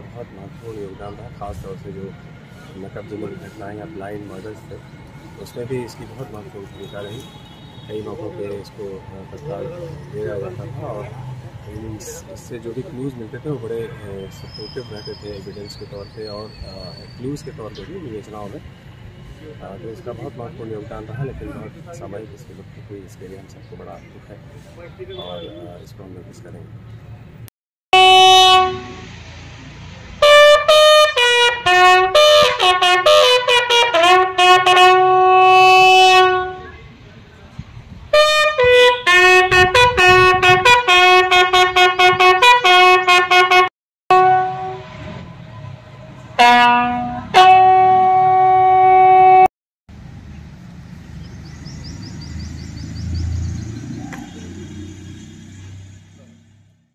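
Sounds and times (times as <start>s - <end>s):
bird chirping: 14.0s - 18.0s, 50.8s - 54.8s
bugle call: 28.0s - 29.1s, 30.2s - 36.8s, 38.1s - 44.9s, 46.4s - 49.5s.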